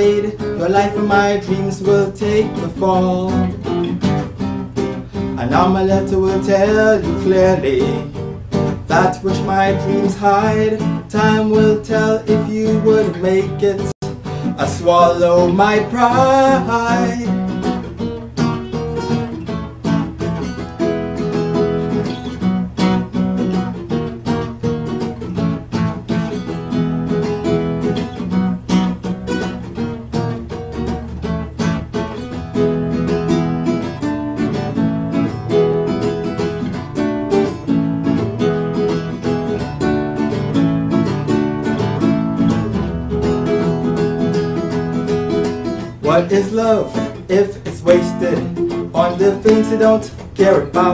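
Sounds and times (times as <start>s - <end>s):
acoustic guitar strummed chords: 0.0s - 50.9s.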